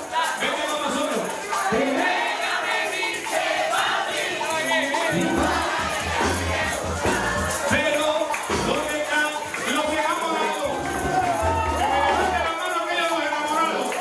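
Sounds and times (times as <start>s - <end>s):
hand percussion: 0.0s - 14.0s
crowd singing along: 1.4s - 12.5s
heavy low beat: 5.1s - 7.9s, 8.5s - 9.0s, 10.7s - 12.5s.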